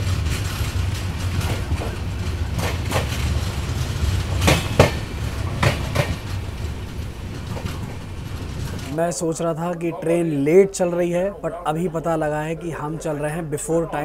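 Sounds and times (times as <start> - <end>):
train wheels clacking over joints: 0.0 - 9.2
train rumbling on track: 0.0 - 10.0.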